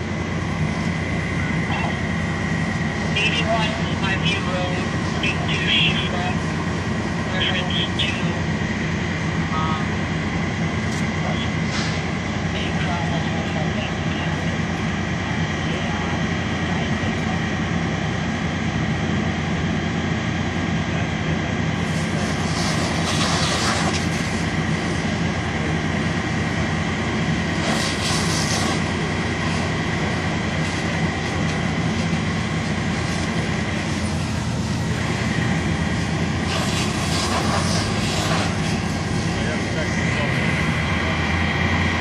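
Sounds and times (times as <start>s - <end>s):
large engine running: 0.0s - 42.0s
hissing surges: 21.8s - 42.0s.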